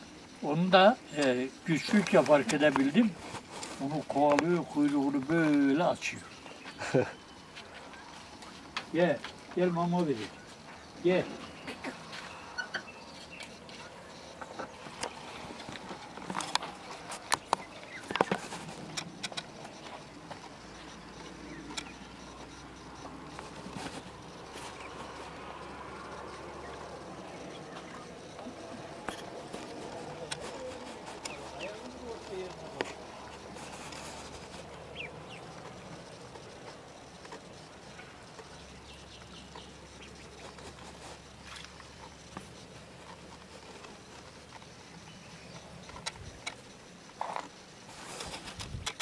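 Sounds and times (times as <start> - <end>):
footsteps on dirt path: 1.1 - 49.0
ducklings calling: 9.7 - 46.5.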